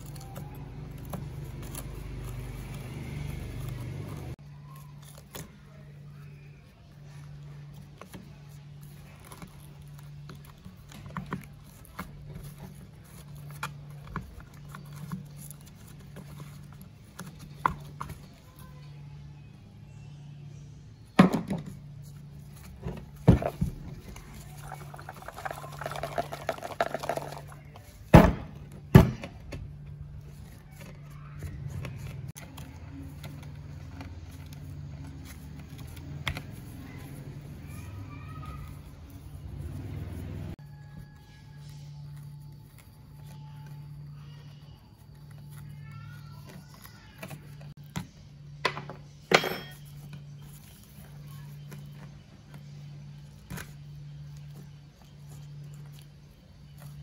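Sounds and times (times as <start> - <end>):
plastic cover handling: 22.1 - 28.7.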